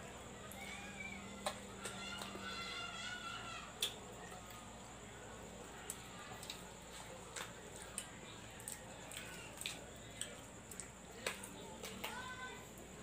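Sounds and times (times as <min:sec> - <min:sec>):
person chewing and smacking: 0:05.9 - 0:12.1.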